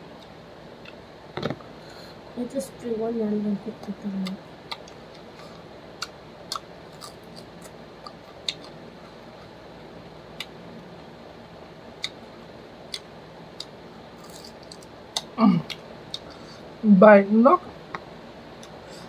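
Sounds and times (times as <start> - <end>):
crunchy chewing: 4.6 - 9.6, 12.9 - 16.7.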